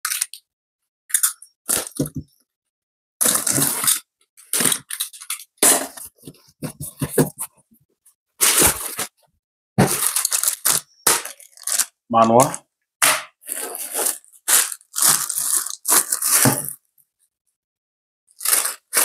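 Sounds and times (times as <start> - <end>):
packing tape tearing: 1.2 - 2.1, 3.2 - 6.1, 8.4 - 9.1, 9.8 - 12.0, 13.4 - 16.8, 18.4 - 19.0.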